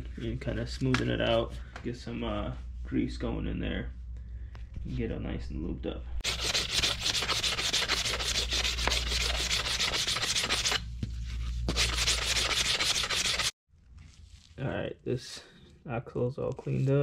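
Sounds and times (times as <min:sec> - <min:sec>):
sandpaper rubbing on metal: 0:06.2 - 0:10.8, 0:11.7 - 0:13.5.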